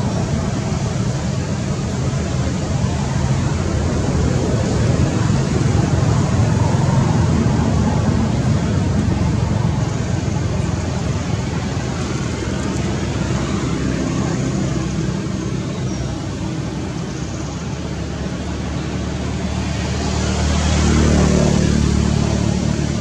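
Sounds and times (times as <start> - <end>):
road traffic engine hum: 0.0 - 23.0
vehicle passing: 0.0 - 23.0.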